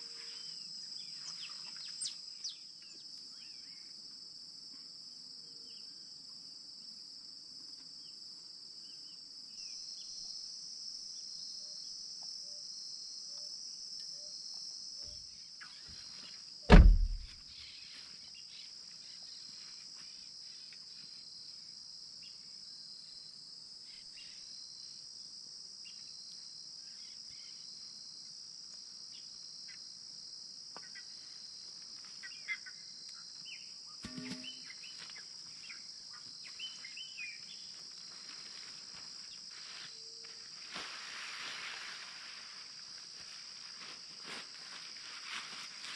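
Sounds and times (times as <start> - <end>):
insects chorus: 0.0 - 45.9
loud thump: 16.7 - 17.3, 34.0 - 34.7.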